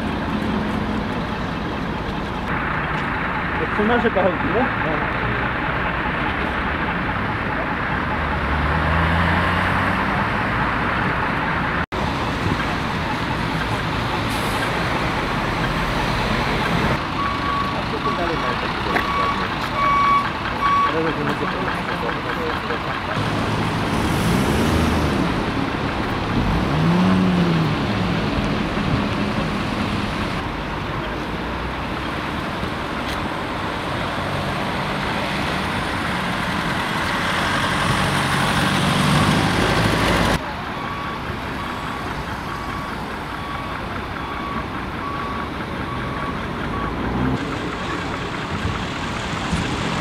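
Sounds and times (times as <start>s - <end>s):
heavy vehicle engines running: 0.0s - 50.0s
street traffic noise: 0.0s - 50.0s
reversing alarm beeping: 17.2s - 22.0s, 40.7s - 47.3s.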